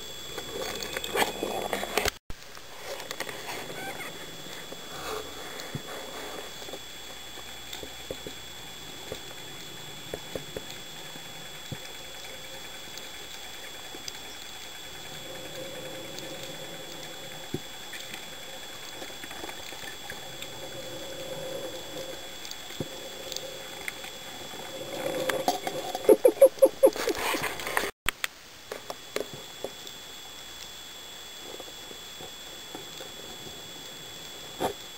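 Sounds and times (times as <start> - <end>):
steady hiss: 0.0 - 26.0
thin high whine: 0.0 - 34.9
faint underwater clicks: 6.6 - 27.1.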